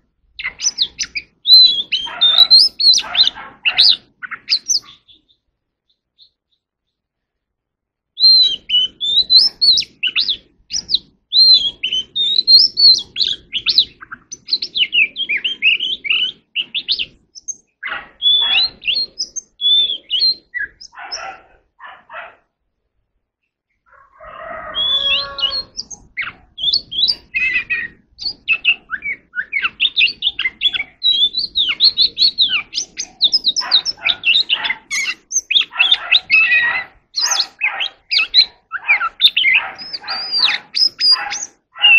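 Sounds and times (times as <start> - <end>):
bird whistling and warbling: 0.4 - 5.4, 8.2 - 21.6, 24.2 - 41.9.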